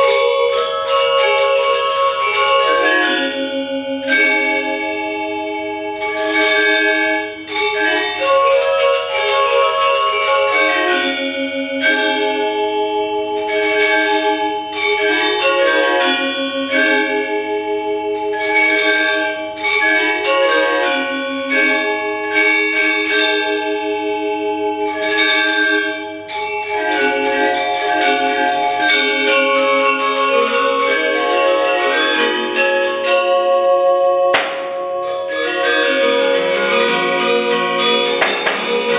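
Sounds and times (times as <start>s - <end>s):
metallophone ensemble playing: 0.0s - 38.9s.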